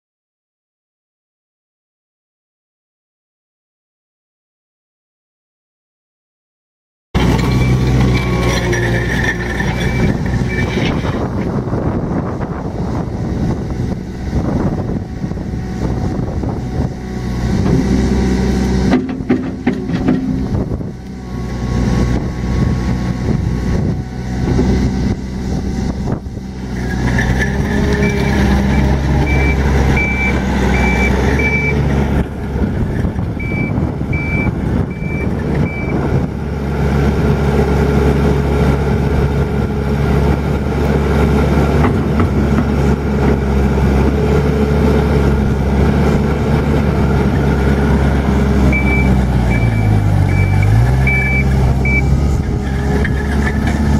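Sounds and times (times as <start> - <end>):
diesel engine running: 7.2 - 53.9
backup alarm beeping: 28.7 - 31.8, 48.7 - 52.1.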